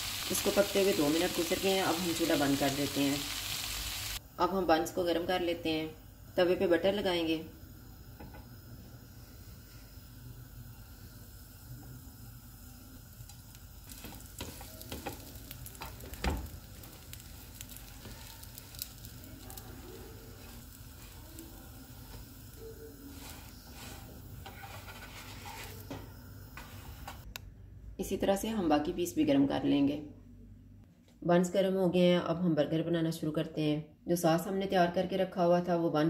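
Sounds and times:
buns sizzling in butter: 0.0 - 27.3.

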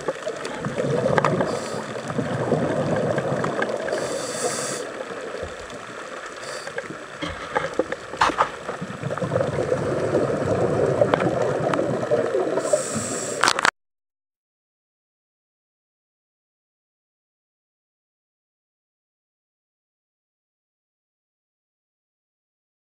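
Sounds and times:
exhaled bubbles rushing: 0.0 - 13.2
regulator breathing inhalations: 1.4 - 2.0, 3.9 - 5.0, 6.4 - 7.7, 12.6 - 13.5.

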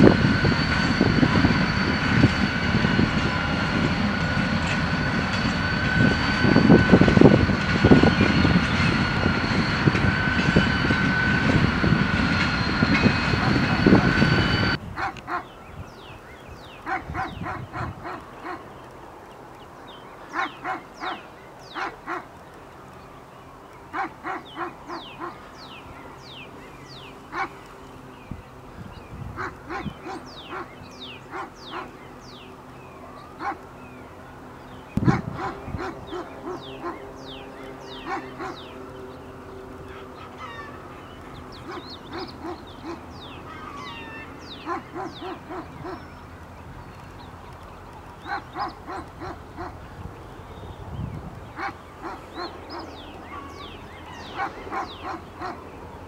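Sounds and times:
steady low hum: 0.0 - 18.7
birds chirping: 0.0 - 56.0
dogs barking: 15.0 - 15.5, 16.8 - 18.6, 20.3 - 22.3, 23.9 - 25.4, 27.3 - 27.6, 29.4 - 32.0, 33.4 - 33.7, 35.0 - 37.1, 37.9 - 38.8, 41.6 - 43.2, 44.5 - 46.1, 48.2 - 49.9, 51.6 - 53.6, 54.2 - 55.7.

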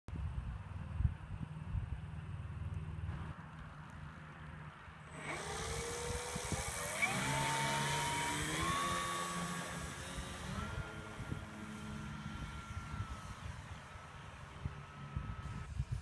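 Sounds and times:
model plane motor whine: 5.0 - 16.0.

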